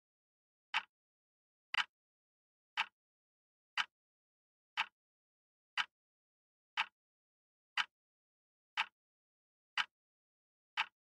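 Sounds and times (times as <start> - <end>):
clock ticking: 0.7 - 0.9, 1.7 - 1.9, 2.8 - 3.0, 4.8 - 5.0, 6.8 - 7.0, 8.8 - 9.0, 10.8 - 11.0.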